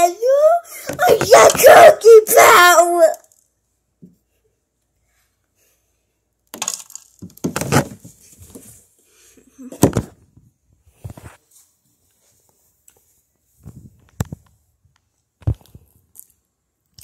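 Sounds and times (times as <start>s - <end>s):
phone handling crackling and knocks: 6.5s - 8.0s.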